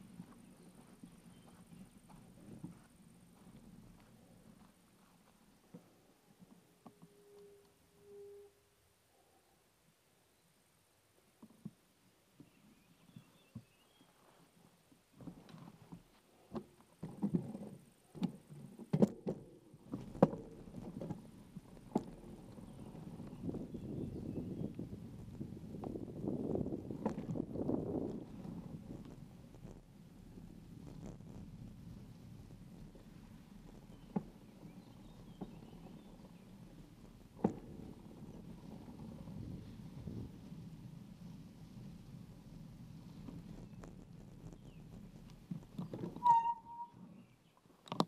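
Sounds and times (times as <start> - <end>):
bicycle rattling on dirt track: 17.1 - 46.9
wind noise on microphone: 19.9 - 47.3.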